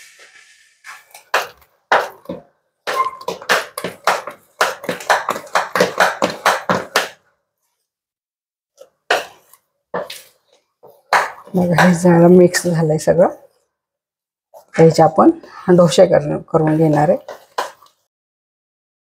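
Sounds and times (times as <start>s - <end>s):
spoon stirring batter in steel bowl: 8.8s - 13.7s, 16.6s - 18.0s.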